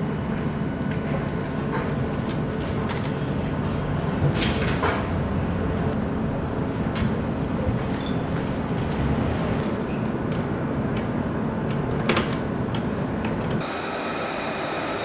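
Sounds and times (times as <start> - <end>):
jet engine rumble: 13.0 - 15.0
jet engine whine: 13.4 - 15.0.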